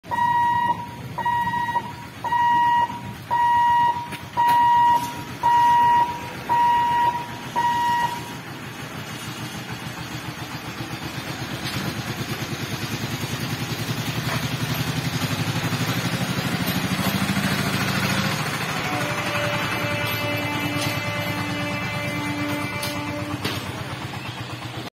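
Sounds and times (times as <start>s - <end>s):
level crossing warning hooter beeping: 0.0s - 24.9s
truck engine approaching: 0.0s - 24.9s.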